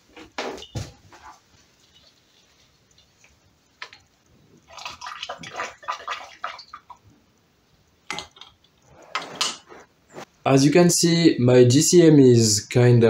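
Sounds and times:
liquid sloshing and splashing: 0:01.3 - 0:07.1.

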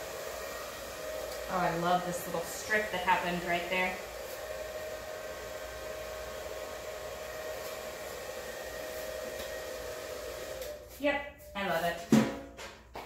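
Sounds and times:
blow dryer running: 0:00.0 - 0:11.0.

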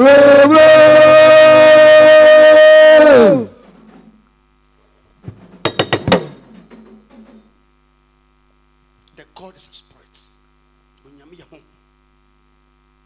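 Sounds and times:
electrical hum: 0:00.0 - 0:13.0
sharp knocks: 0:05.2 - 0:07.6.

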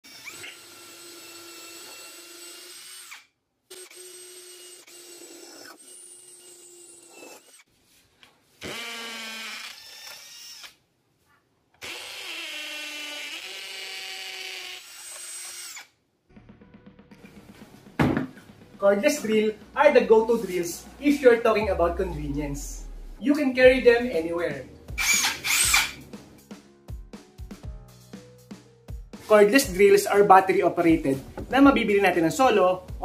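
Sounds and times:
cordless drill whining: 0:00.0 - 0:07.6, 0:08.6 - 0:10.8, 0:11.8 - 0:15.9, 0:25.0 - 0:26.0.

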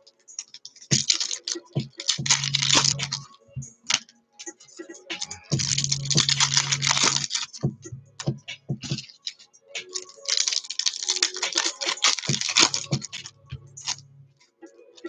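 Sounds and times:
foil wrappers tearing and crinkling: 0:00.4 - 0:03.2, 0:05.2 - 0:07.6, 0:08.9 - 0:13.2
cards clicking: 0:00.4 - 0:03.3, 0:05.1 - 0:14.0.

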